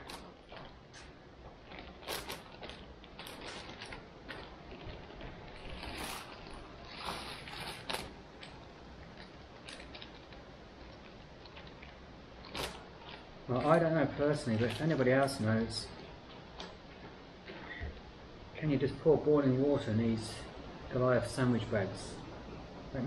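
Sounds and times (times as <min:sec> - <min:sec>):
plastic bag crinkling: 0:00.0 - 0:16.8.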